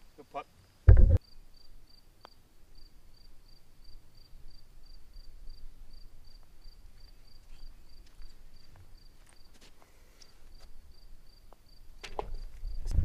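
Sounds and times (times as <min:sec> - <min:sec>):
cricket chirping: 0:01.2 - 0:09.6, 0:10.2 - 0:12.9.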